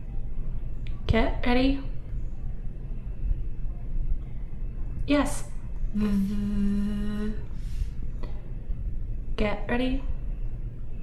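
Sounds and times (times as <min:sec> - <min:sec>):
low background noise: 0:00.0 - 0:11.0
woman humming th sound: 0:05.9 - 0:07.6
soft breath: 0:06.0 - 0:08.8.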